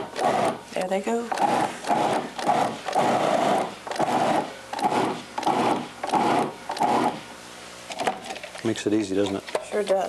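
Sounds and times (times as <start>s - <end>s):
food processor chopping in bursts: 0.0s - 0.6s, 1.3s - 7.3s.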